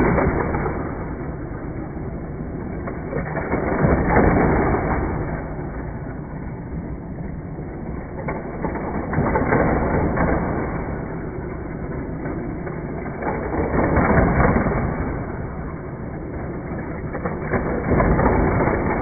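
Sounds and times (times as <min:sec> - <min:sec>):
toy cars rattling on plastic track: 0:08.2 - 0:19.0.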